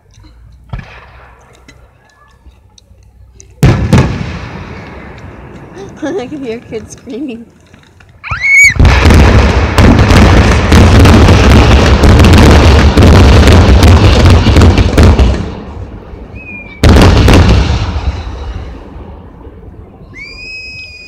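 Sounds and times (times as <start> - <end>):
fireworks booms and cracks: 0.7 - 1.9, 3.6 - 7.4, 8.4 - 19.5.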